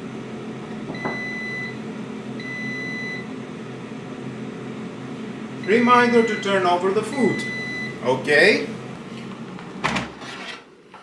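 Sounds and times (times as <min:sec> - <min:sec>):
air fryer long beeps: 0:00.0 - 0:08.7
air fryer humming: 0:00.0 - 0:11.0.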